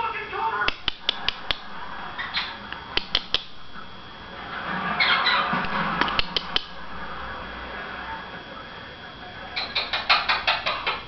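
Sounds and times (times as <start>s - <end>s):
sharp clicks: 0.7s - 1.6s, 2.9s - 3.6s, 6.0s - 6.8s.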